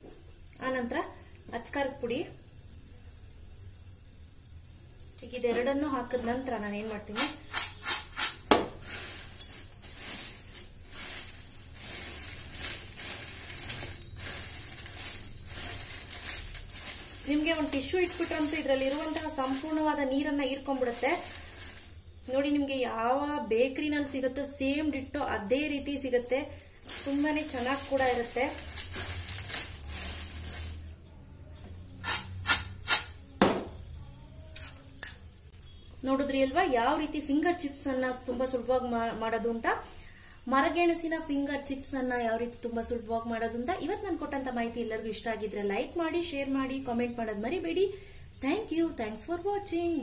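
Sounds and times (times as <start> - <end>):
fried snacks rustling in steel bowl: 5.6 - 22.7, 24.6 - 31.0.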